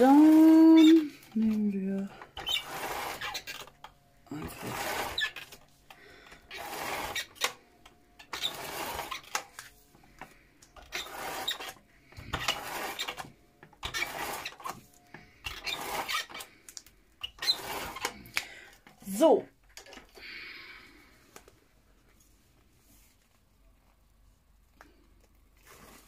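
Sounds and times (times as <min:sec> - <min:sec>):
hand tool scraping paper: 0:00.0 - 0:03.7, 0:04.3 - 0:05.7, 0:06.4 - 0:07.6, 0:08.2 - 0:16.6, 0:17.2 - 0:18.3, 0:24.9 - 0:26.0.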